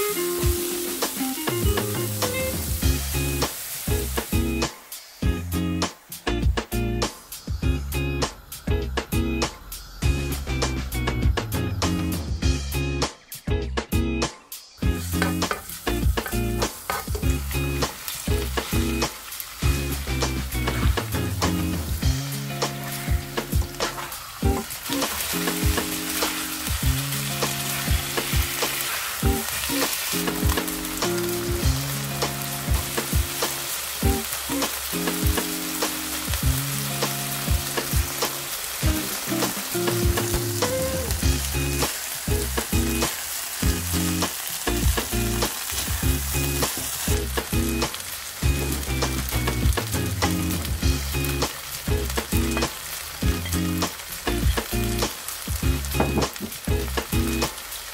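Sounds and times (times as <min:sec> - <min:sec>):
chicken sizzling in a wok: 0:00.0 - 0:13.0, 0:14.6 - 0:57.9
background music: 0:00.0 - 0:57.6
spatula scraping and tapping pan: 0:15.2 - 0:17.3.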